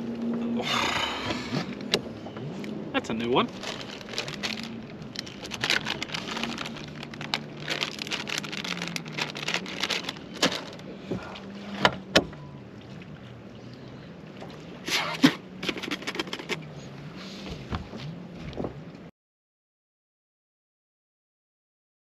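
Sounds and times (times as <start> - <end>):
low wavering hum: 0.0 - 19.0.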